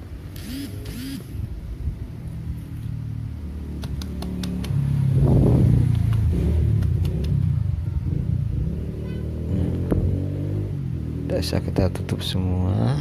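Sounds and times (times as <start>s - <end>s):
vehicle engine humming: 0.0s - 13.0s.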